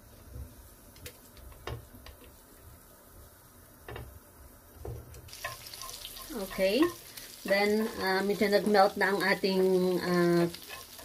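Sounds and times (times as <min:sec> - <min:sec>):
butter sizzling faintly: 0:00.0 - 0:11.0
knife tapping and scraping pan: 0:04.9 - 0:08.7, 0:10.5 - 0:11.0.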